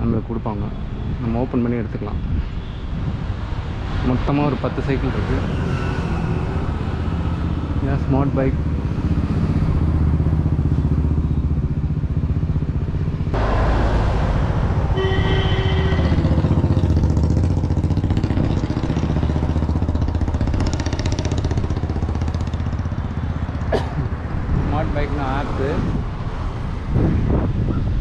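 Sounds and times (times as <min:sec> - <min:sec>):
traffic noise: 0:00.0 - 0:28.0
short pitched horn tone: 0:14.9 - 0:16.5.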